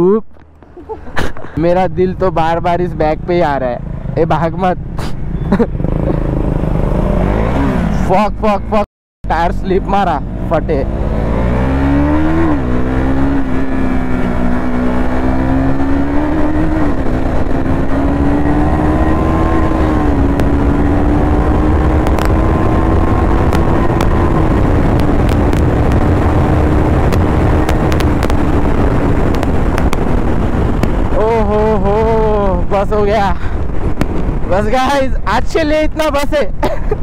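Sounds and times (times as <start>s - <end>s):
wind and road noise: 0.0s - 37.0s
motorcycle engine running: 5.3s - 7.7s, 11.8s - 34.5s.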